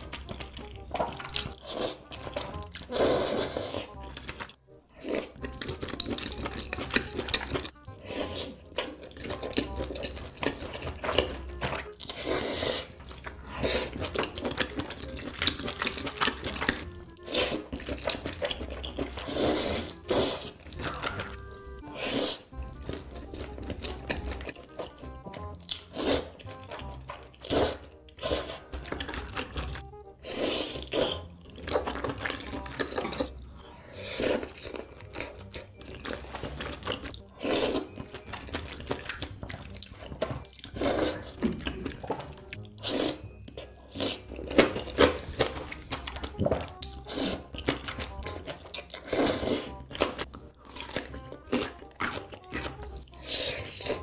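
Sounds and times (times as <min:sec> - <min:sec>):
wet chewing mouth sounds: 0:00.0 - 0:54.0
person slurping noodles: 0:01.5 - 0:04.0, 0:05.0 - 0:08.7, 0:12.0 - 0:16.4, 0:17.2 - 0:22.6, 0:25.7 - 0:29.6, 0:30.2 - 0:35.3, 0:36.1 - 0:38.1, 0:40.5 - 0:45.4, 0:46.9 - 0:47.8, 0:48.9 - 0:49.8, 0:51.5 - 0:54.0.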